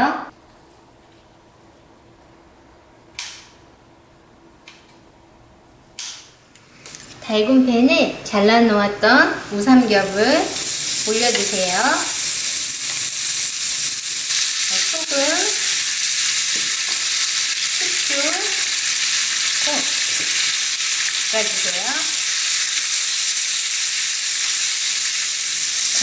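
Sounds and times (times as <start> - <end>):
meat sizzling in a frying pan: 9.5 - 26.0.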